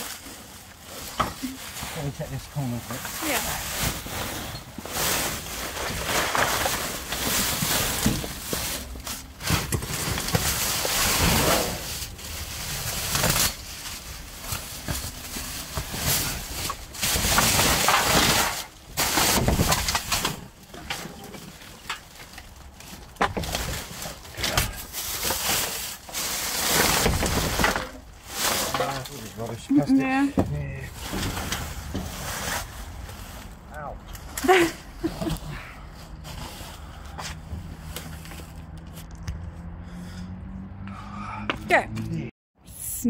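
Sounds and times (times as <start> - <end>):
plastic bags crinkling: 0.0 - 29.9.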